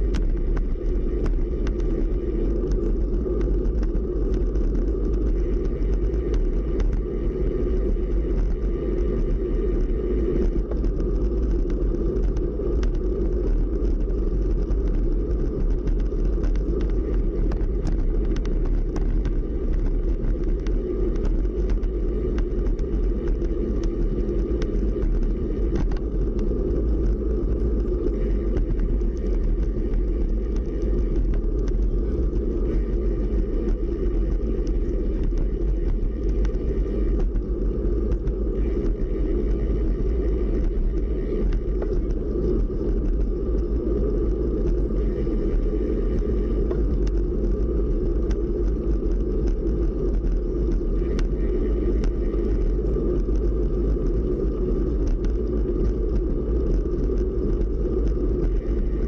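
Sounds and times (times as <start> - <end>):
bicycle tyres rolling on asphalt: 0.0 - 59.0
faint ticks: 0.0 - 59.0
wind buffeting microphone: 0.0 - 59.0.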